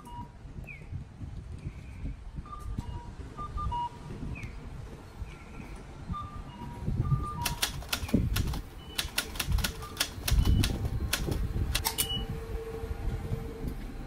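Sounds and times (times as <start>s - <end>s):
sharp clicks and clacks: 7.4s - 12.0s.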